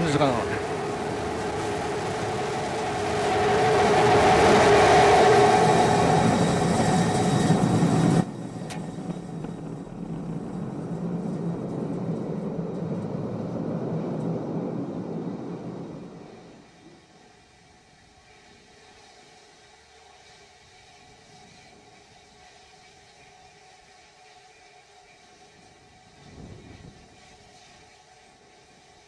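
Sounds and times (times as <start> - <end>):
steady rushing noise: 0.0 - 16.8
rocket engine roar: 0.0 - 17.0.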